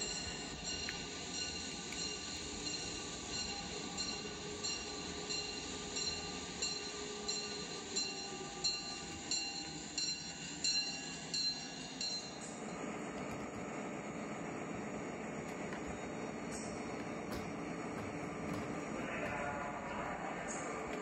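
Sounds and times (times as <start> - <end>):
toy train motor hum: 0.0 - 12.4
wheels clicking over track joints: 15.4 - 21.0.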